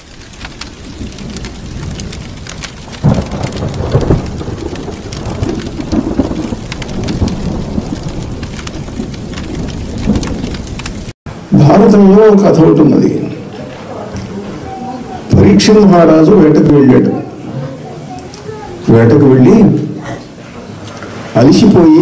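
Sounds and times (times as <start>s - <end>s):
rumbling thunder: 0.0s - 13.1s
rain hissing: 0.0s - 22.0s.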